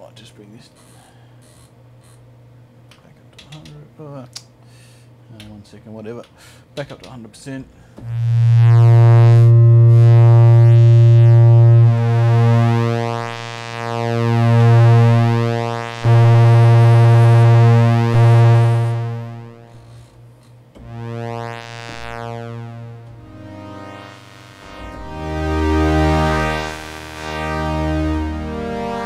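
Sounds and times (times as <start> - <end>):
synthesizer pulse-wave pad note: 8.0 - 20.2, 20.8 - 29.0.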